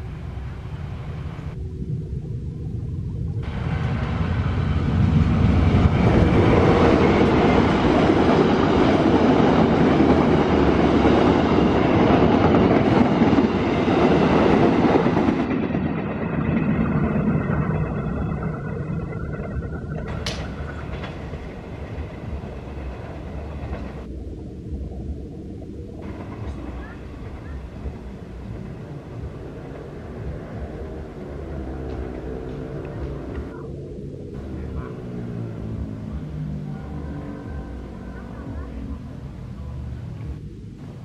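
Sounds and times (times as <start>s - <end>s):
train passing on rails: 0.0s - 1.6s, 3.4s - 24.2s, 26.0s - 41.0s.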